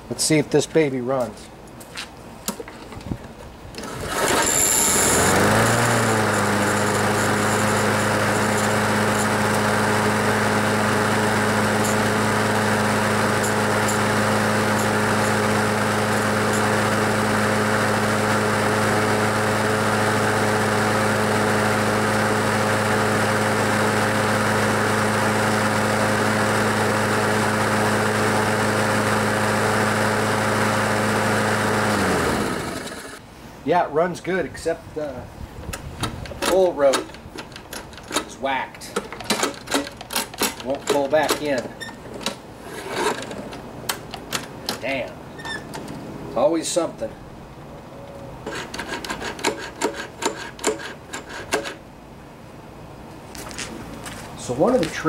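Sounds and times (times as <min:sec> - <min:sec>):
lawnmower engine running: 0:03.7 - 0:33.2, 0:36.2 - 0:46.8, 0:47.6 - 0:52.0
pull-start cord: 0:03.8 - 0:09.9, 0:35.7 - 0:46.0, 0:48.5 - 0:51.8.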